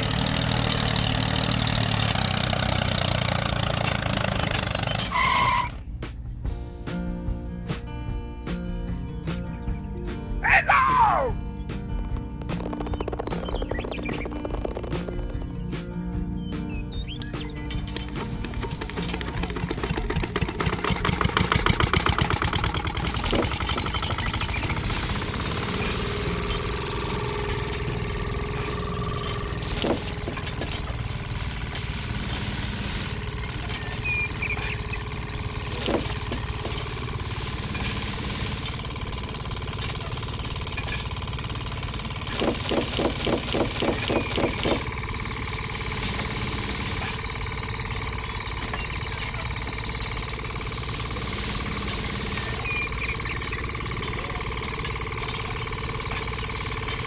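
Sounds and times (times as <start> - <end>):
small motor humming: 0.0 - 5.1, 18.0 - 57.0
quick rhythmic pulses: 10.4 - 57.0.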